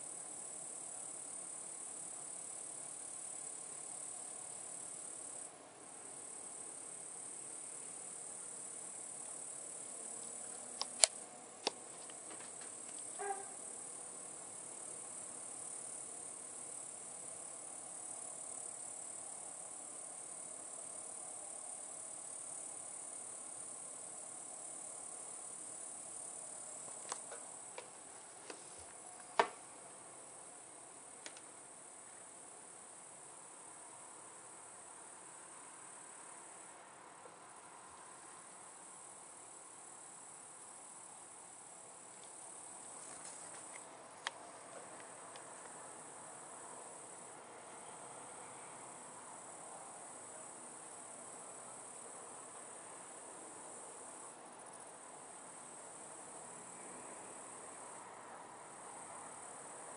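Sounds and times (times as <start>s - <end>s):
crickets chirring: 0.0s - 59.9s
faint ticks: 10.2s - 13.6s, 26.8s - 27.9s, 31.2s - 31.5s
sharp clicks: 10.8s - 12.2s.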